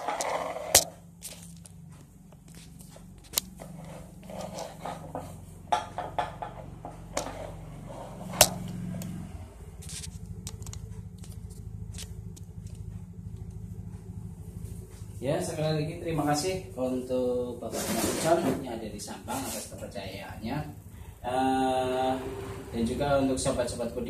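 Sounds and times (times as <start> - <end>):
sharp clicks and knocks: 0.0 - 7.4, 9.8 - 14.1
low steady hum: 0.0 - 24.0.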